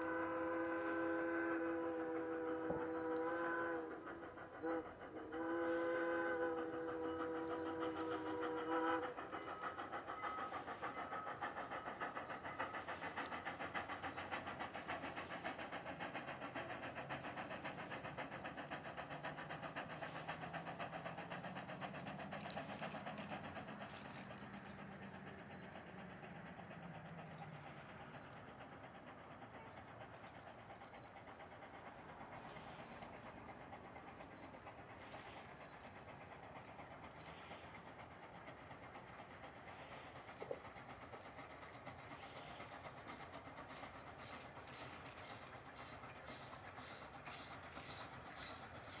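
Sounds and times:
steam whistle: 0:00.0 - 0:09.6
steam locomotive chuffing: 0:00.0 - 0:49.0.

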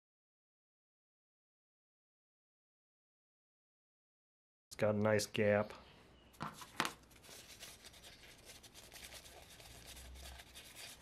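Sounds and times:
paper towel rubbing metal part: 0:06.6 - 0:11.0.

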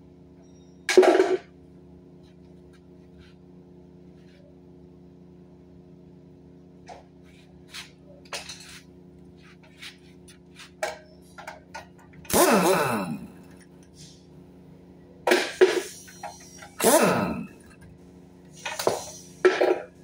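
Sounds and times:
steady low hum: 0:00.0 - 0:20.0
pneumatic wrench spinning: 0:12.3 - 0:13.6, 0:15.5 - 0:17.7.

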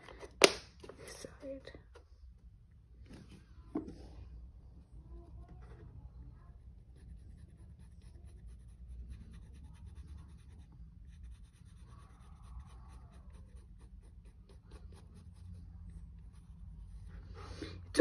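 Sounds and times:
faint pencil scratching: 0:05.2 - 0:17.6.

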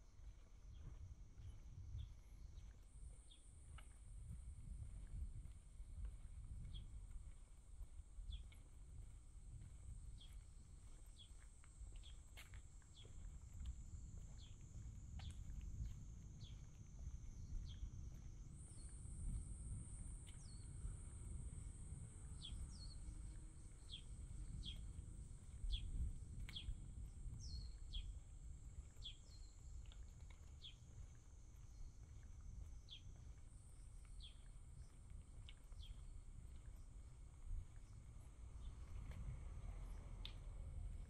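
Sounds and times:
low rumble: 0:00.4 - 0:41.0
bird chirping: 0:22.3 - 0:25.0, 0:27.4 - 0:28.2, 0:28.8 - 0:33.2, 0:34.0 - 0:35.0.

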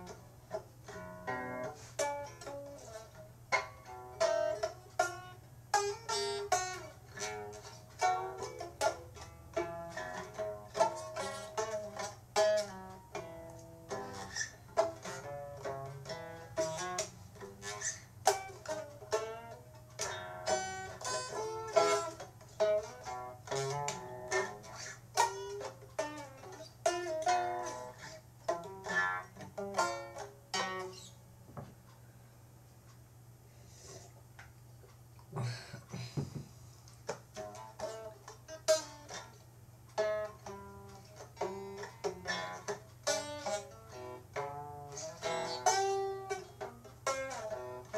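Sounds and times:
plucked string instrument: 0:00.0 - 0:31.7, 0:37.0 - 0:47.9
faint low hum: 0:00.0 - 0:47.9.

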